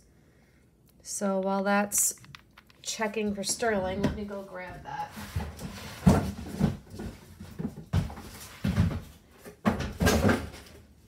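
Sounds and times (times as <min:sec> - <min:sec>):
boxes knocking and scraping: 0:03.4 - 0:10.8.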